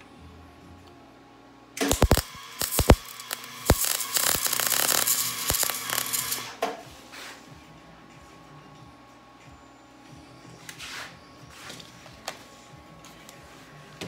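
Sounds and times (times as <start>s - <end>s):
arc welding crackling: 1.8s - 6.6s.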